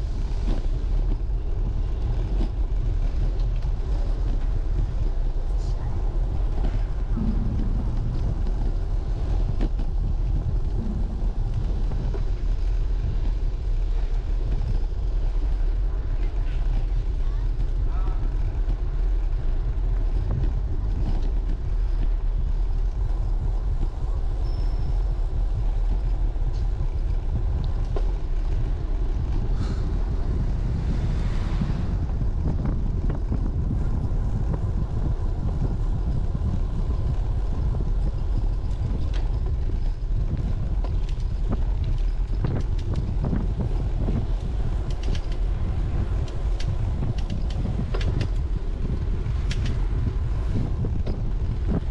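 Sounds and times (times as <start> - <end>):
wind rumble on microphone: 0.0 - 51.9.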